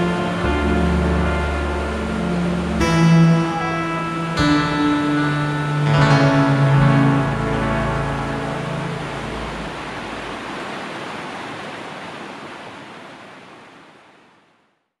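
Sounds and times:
background music: 0.0 - 10.3
mountain stream rushing over rocks: 0.0 - 14.6.

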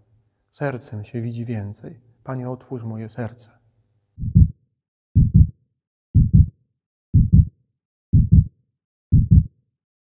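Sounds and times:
heartbeat double thump: 4.2 - 4.6, 5.2 - 5.6, 6.2 - 7.5, 8.1 - 8.5, 9.1 - 9.5.

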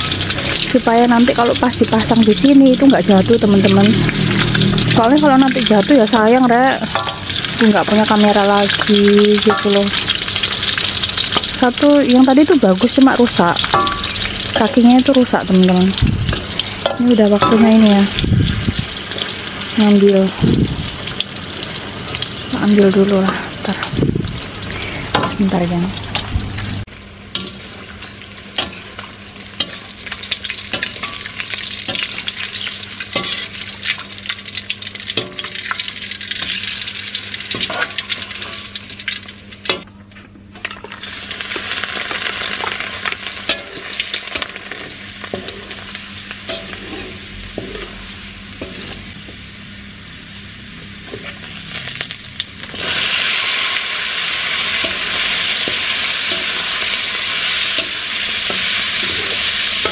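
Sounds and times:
oil sizzling in a wok: 0.0 - 40.0, 40.6 - 59.9
metal spatula scraping pan: 46.5 - 48.0.

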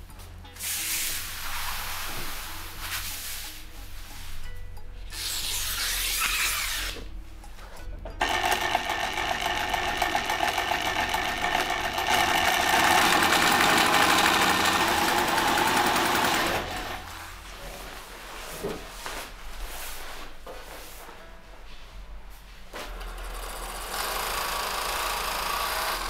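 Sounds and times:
industrial sewing machine stitching: 8.2 - 17.1, 22.9 - 26.0.

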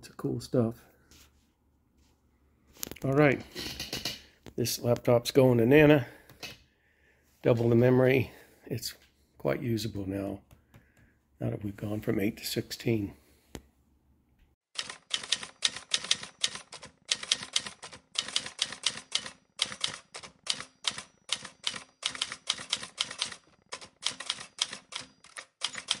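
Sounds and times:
fast typing on a keyboard: 14.8 - 26.0.

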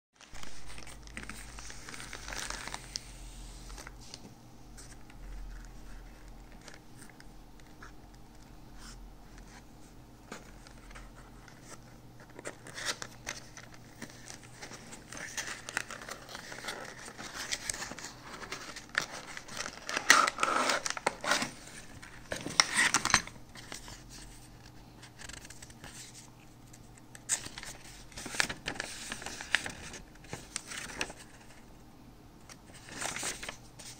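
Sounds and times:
packaging rustling and crinkling: 0.2 - 7.9, 10.2 - 31.6.

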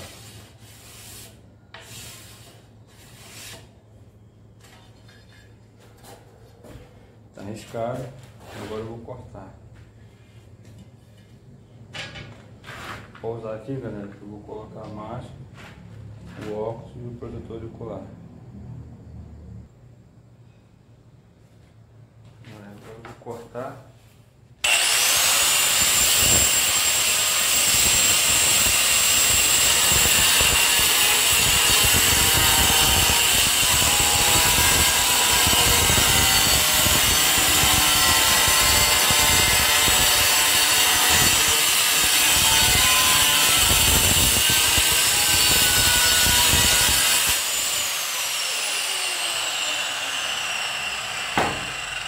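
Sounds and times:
angle grinder cutting tile: 24.6 - 52.0.

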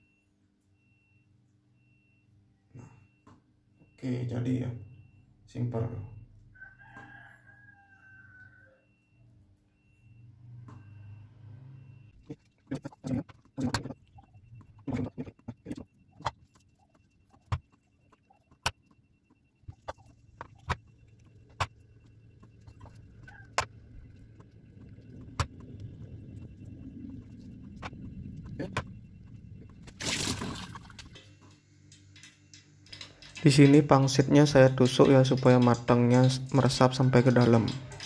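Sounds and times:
low steady hum: 9.1 - 38.0.

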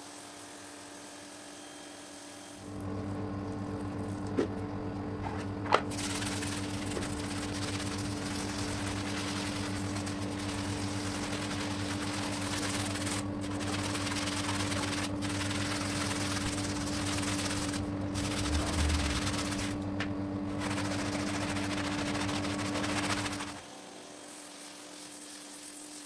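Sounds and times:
steady low hum: 2.6 - 23.6
brush scrubbing rug: 5.9 - 19.9, 20.5 - 26.0.

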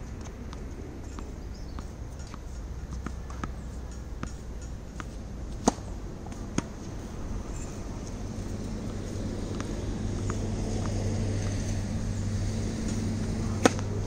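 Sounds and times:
balls bouncing on hard court: 0.2 - 6.9, 13.6 - 14.0
tennis balls hit with rackets: 0.5 - 7.1, 8.8 - 12.1, 12.8 - 14.0.

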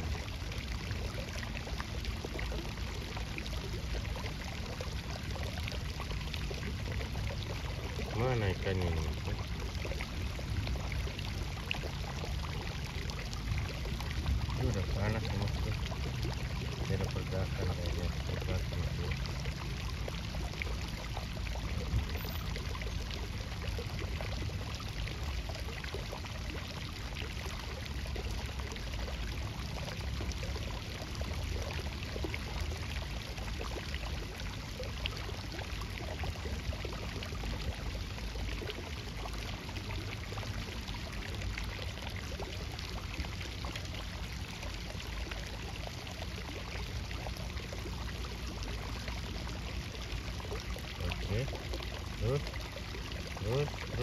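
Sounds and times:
water running steadily: 0.0 - 54.0.

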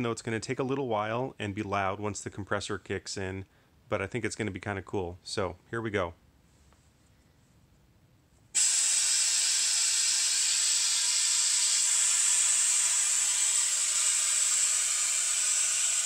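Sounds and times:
compressed air hissing: 8.6 - 16.0.

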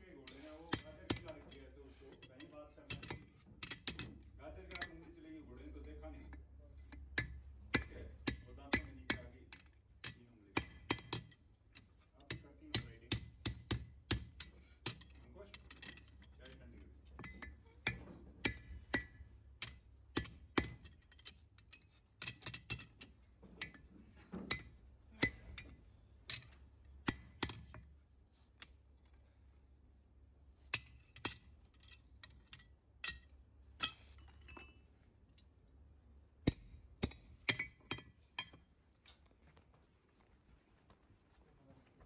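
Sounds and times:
hammer striking horseshoe on anvil: 0.3 - 1.6, 2.2 - 5.0, 7.0 - 11.4, 12.2 - 16.6, 17.2 - 23.8, 24.4 - 27.9, 30.7 - 34.9, 36.4 - 38.6.

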